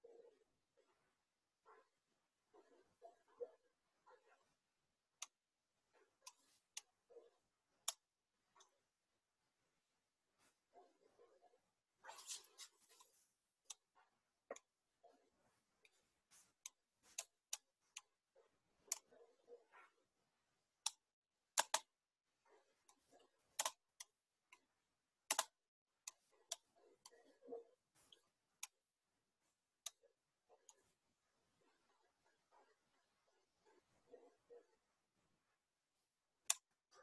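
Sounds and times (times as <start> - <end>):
computer mouse clicks: 6.1 - 8.8, 15.8 - 18.1, 18.8 - 20.0, 20.8 - 22.0, 22.8 - 24.7, 25.3 - 28.8, 36.4 - 36.8.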